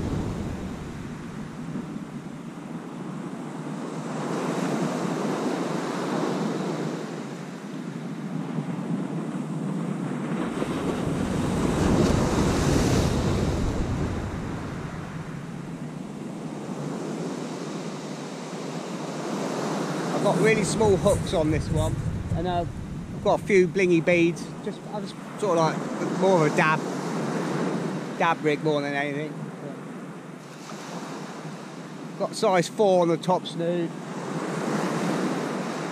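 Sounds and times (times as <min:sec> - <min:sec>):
surf breaking on beach: 0:00.0 - 0:02.0, 0:10.2 - 0:29.2
wind gusting on microphone: 0:00.0 - 0:28.3.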